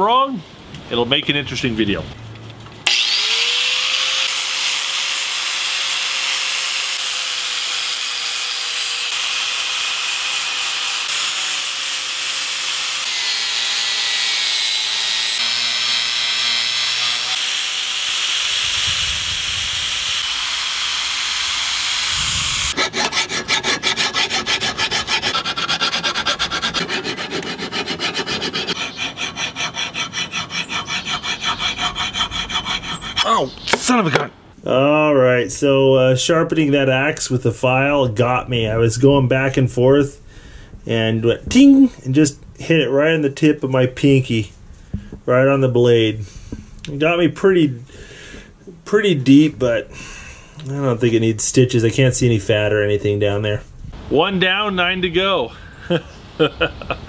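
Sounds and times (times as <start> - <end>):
angle grinder grinding metal: 2.9 - 33.8
hand file on metal edge: 22.7 - 33.8.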